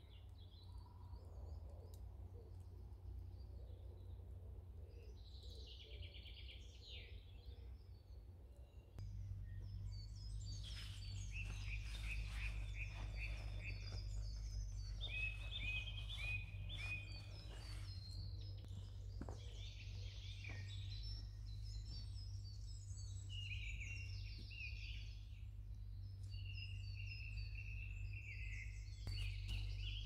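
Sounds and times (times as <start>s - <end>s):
birds chirping: 0.0s - 30.0s
low steady rumble: 0.0s - 30.0s
bird trill: 9.4s - 30.0s.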